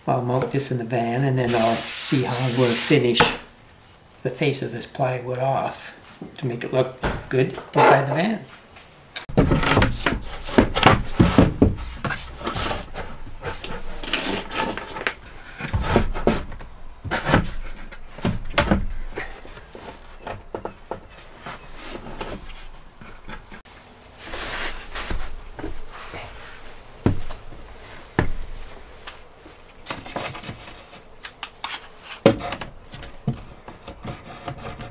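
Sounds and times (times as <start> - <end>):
plywood scraping and rubbing: 1.4 - 3.4, 9.3 - 23.6, 24.2 - 34.9
wooden knocks and thumps: 9.3 - 23.6, 27.0 - 28.8, 32.2 - 34.9.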